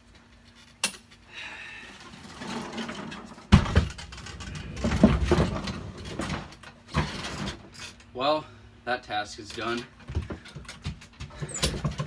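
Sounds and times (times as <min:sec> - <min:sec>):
lawn mower wheels rolling and rattling: 0:02.0 - 0:08.1.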